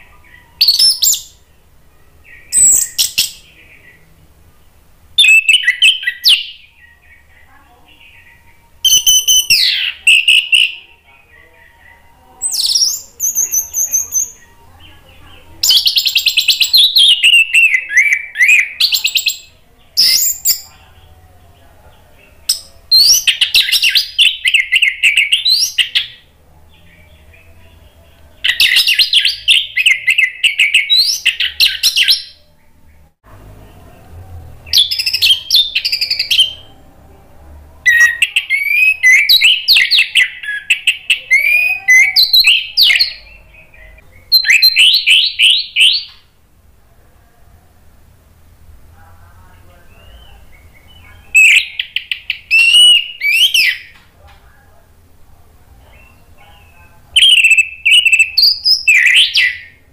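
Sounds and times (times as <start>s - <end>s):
thrush singing: 0.0s - 46.1s.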